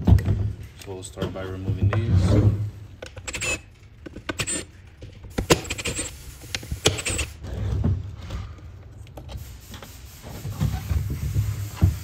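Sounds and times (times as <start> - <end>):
hand tools unscrewing screws: 3.0 - 7.6.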